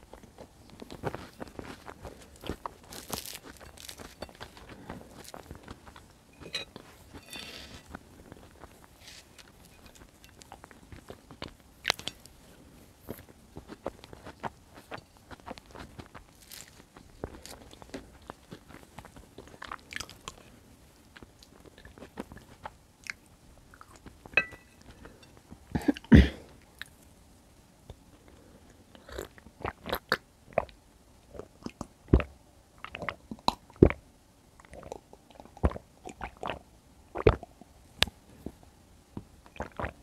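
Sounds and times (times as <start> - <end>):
chewing bread: 0.0 - 26.1, 28.3 - 34.0, 34.6 - 37.8
sipping and swallowing juice: 34.6 - 37.7, 39.4 - 40.0.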